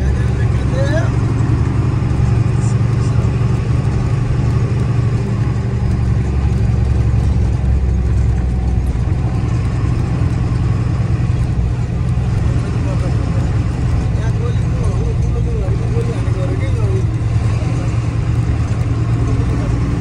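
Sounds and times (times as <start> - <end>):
diesel truck engine droning: 0.0 - 20.0.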